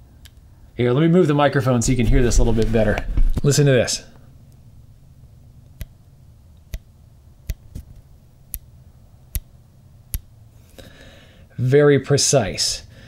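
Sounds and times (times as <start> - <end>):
scope turret clicks: 5.6 - 10.4.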